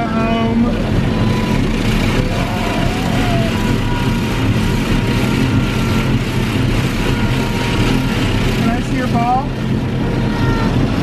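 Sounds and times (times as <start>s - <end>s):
car wash water jets spraying: 0.0s - 11.0s
toddler crying faintly: 10.0s - 11.0s.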